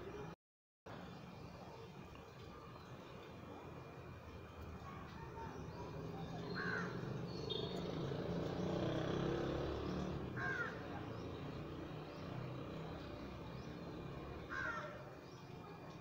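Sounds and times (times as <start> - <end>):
crow cawing: 6.5 - 7.0, 10.4 - 10.9, 14.5 - 15.0.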